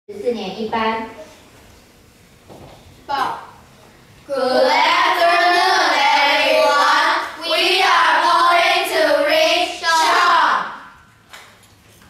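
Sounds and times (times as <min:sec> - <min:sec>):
children singing in unison: 0:04.3 - 0:10.6.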